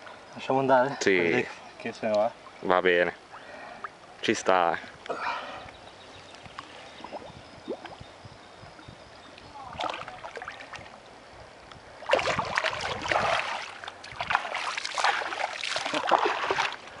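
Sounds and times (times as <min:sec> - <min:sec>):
fish splashing in water: 0:12.1 - 0:16.9.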